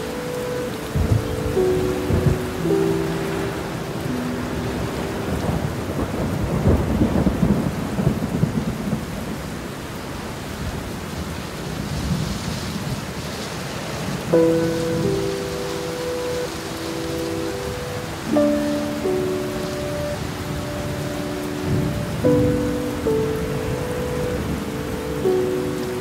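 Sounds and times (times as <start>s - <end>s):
thunder rumble: 0.0s - 9.7s
heavy rain: 0.0s - 26.0s.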